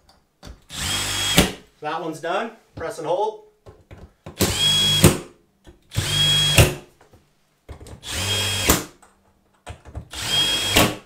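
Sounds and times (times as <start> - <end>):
cordless drill driving bolts: 0.7 - 1.6, 4.4 - 5.2, 5.9 - 6.8, 8.0 - 8.9, 10.1 - 11.0.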